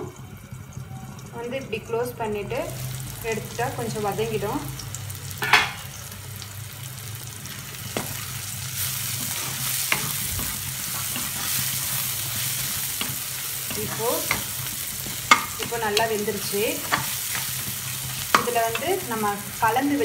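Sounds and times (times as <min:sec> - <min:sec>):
vegetables sizzling in oil: 0:00.0 - 0:20.0
spatula scraping and tapping pan: 0:09.1 - 0:19.4.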